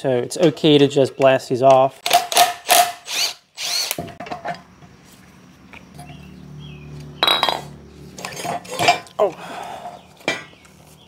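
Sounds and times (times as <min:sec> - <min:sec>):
metal tools clinking: 0:07.2 - 0:09.4.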